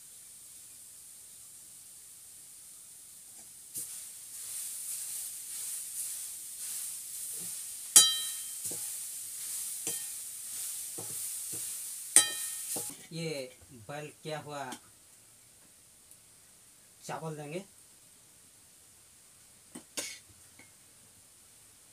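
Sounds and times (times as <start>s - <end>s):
vegetables sizzling in a pan: 0.0s - 13.5s
spoon stirring and scraping: 3.8s - 13.0s
spoon clanking on pan: 8.0s - 9.0s, 9.8s - 10.2s, 11.0s - 13.0s.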